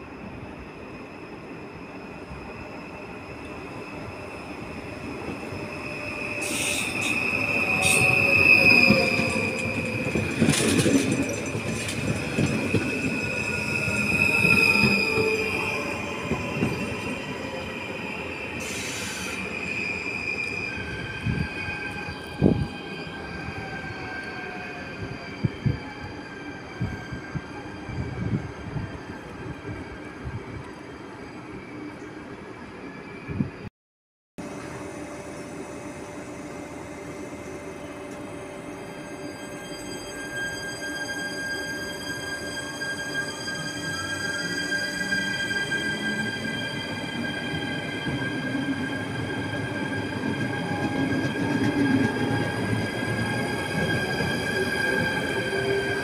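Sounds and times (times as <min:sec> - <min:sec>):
train wheel squeal: 0:00.0 - 0:33.7, 0:34.4 - 0:56.0.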